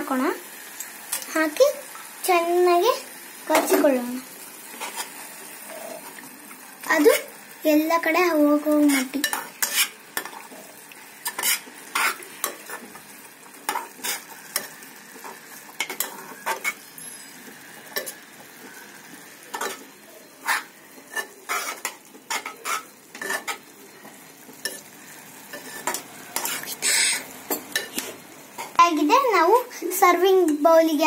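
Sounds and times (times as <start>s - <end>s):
food sizzling: 0.0s - 31.0s
spoon scraping a metal pot: 8.9s - 10.4s, 11.2s - 12.8s, 20.4s - 23.6s, 25.5s - 28.1s.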